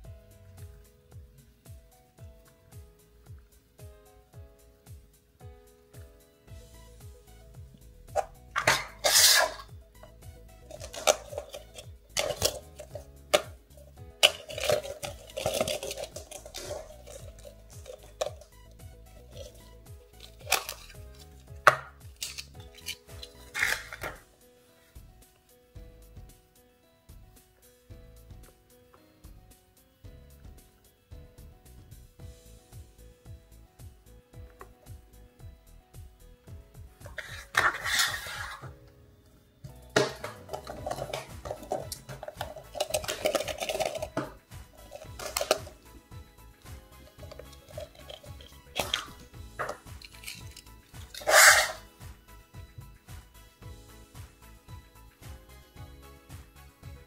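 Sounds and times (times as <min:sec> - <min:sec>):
faint background music: 0:00.0 - 0:57.0
paper rustling: 0:08.2 - 0:09.7, 0:20.2 - 0:24.2, 0:37.1 - 0:38.8
plastic capsule clicks and snaps: 0:10.7 - 0:13.5, 0:40.0 - 0:45.8, 0:47.2 - 0:51.3.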